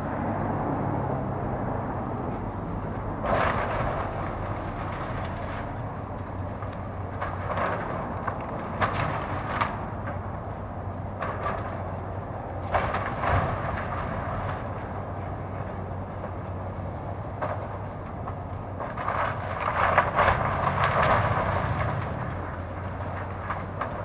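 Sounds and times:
diesel engine humming: 0:00.0 - 0:24.0
crashing wood and brick: 0:03.2 - 0:12.0, 0:12.6 - 0:15.6, 0:17.3 - 0:24.0.

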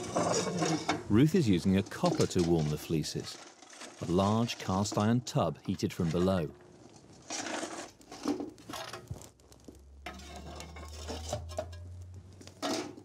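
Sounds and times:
fire iron scraping and clinking: 0:00.0 - 0:13.0
low steady hum: 0:08.7 - 0:13.0.

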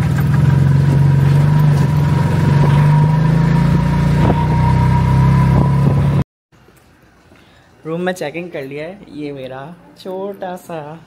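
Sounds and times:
small engine running: 0:00.0 - 0:04.4.

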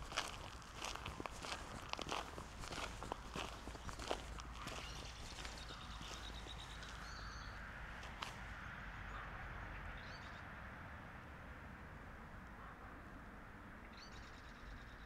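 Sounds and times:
birds chirping: 0:00.0 - 0:08.2.

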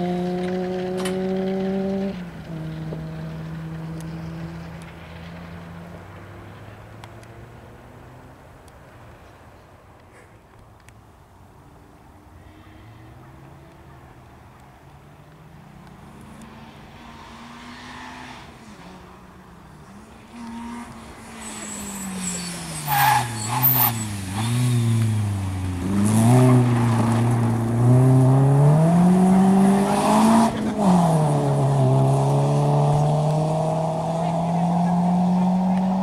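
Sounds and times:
rally car engine: 0:00.0 - 0:09.4, 0:11.6 - 0:36.0.

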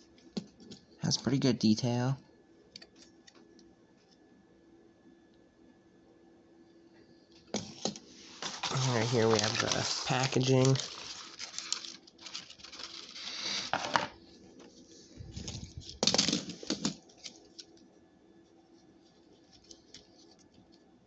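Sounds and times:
rustling handling noise: 0:07.5 - 0:17.8, 0:18.6 - 0:20.8.

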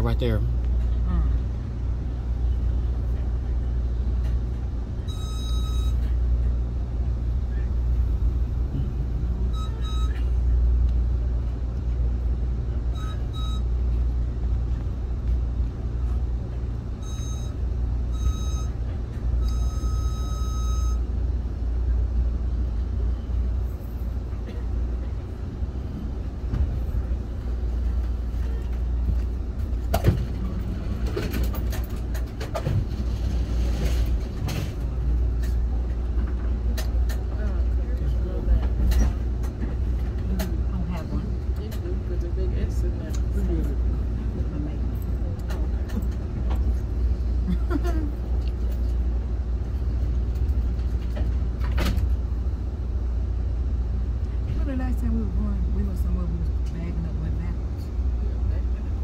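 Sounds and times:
train car rumbling: 0:00.0 - 0:59.0
train car clunks: 0:26.0 - 0:47.0, 0:50.0 - 0:52.5.

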